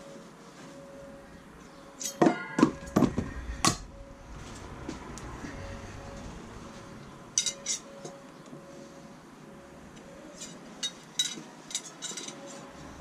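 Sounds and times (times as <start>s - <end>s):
metal knives clinking: 2.0s - 2.6s, 7.4s - 7.9s, 10.4s - 12.7s.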